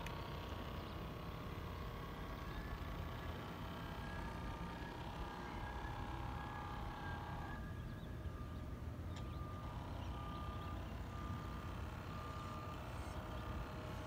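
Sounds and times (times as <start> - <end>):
model boat motor whining: 0.0 - 14.0
faint beeping tone: 5.4 - 14.0.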